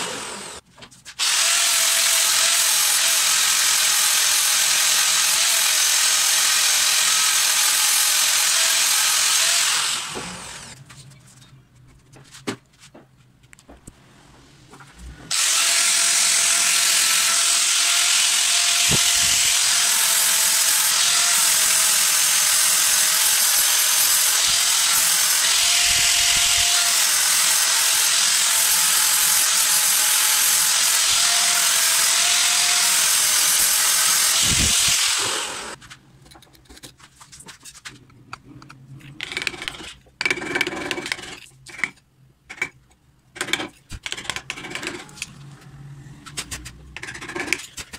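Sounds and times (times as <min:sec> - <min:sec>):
angle grinder grinding metal: 0:01.2 - 0:10.8, 0:15.3 - 0:35.8, 0:43.4 - 0:47.9
irregular scratching: 0:35.8 - 0:42.8.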